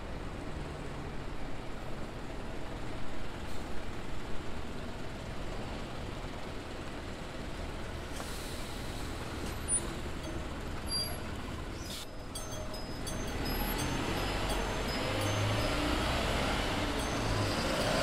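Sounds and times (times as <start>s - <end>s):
bus engine and road noise: 0.0s - 18.0s
air brake hiss: 8.1s - 9.9s, 11.8s - 12.2s.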